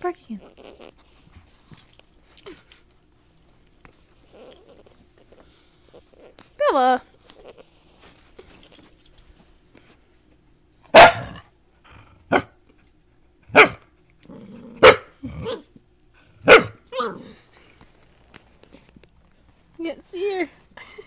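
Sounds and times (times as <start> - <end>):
puppy barking: 10.9 - 11.4, 12.3 - 12.6, 13.5 - 13.8, 14.8 - 15.7, 16.4 - 17.2.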